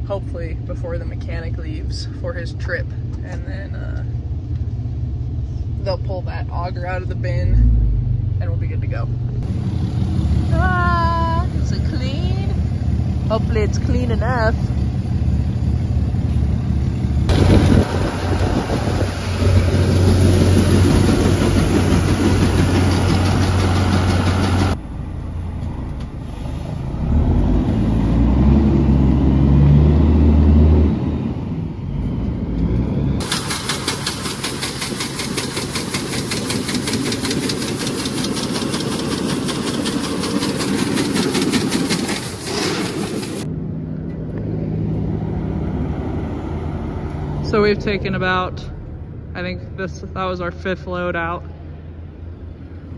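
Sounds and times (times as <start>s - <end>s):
truck engine: 0.0s - 52.9s
farm vehicle engines running: 9.4s - 30.5s, 31.4s - 51.4s.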